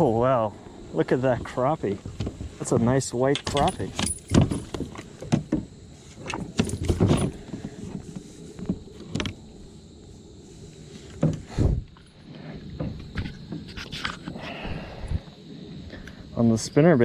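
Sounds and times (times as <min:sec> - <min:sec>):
tackle knocking and rattling: 0:03.4 - 0:07.5.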